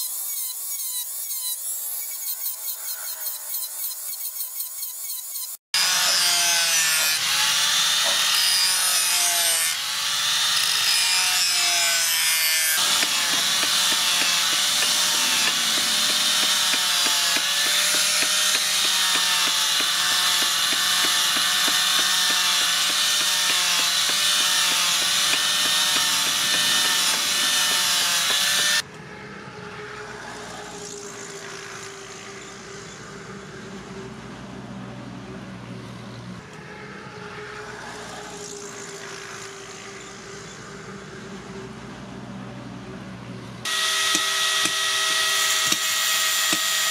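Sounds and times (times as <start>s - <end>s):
angle grinder grinding steel: 0.0s - 28.8s, 43.6s - 46.9s
hand file scraping blade: 0.0s - 28.8s, 43.7s - 46.9s.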